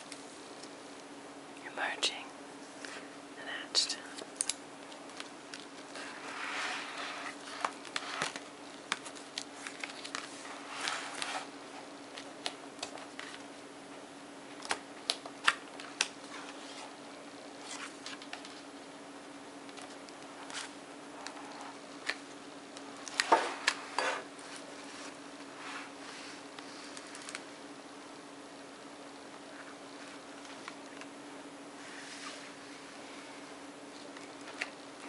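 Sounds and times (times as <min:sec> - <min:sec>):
faint steady hum: 0:00.0 - 0:35.0
paper pages rustling: 0:04.2 - 0:11.5, 0:12.1 - 0:13.5, 0:17.6 - 0:18.6, 0:19.6 - 0:22.3, 0:23.0 - 0:27.4.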